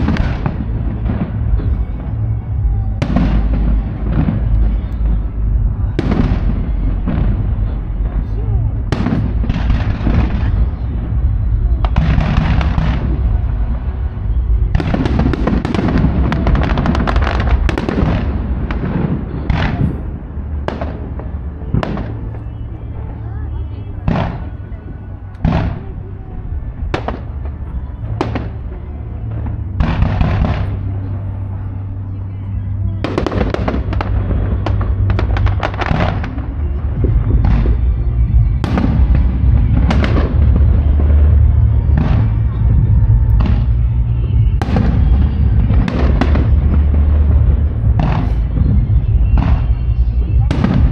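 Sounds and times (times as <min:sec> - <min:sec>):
sharp firework bangs: 0:00.0 - 0:22.7, 0:23.4 - 0:26.2, 0:26.8 - 0:31.7, 0:33.0 - 0:50.9
firework booms: 0:00.0 - 0:32.1, 0:32.7 - 0:50.9
firework crackling: 0:00.0 - 0:50.9
steady low rumble: 0:00.0 - 0:50.9.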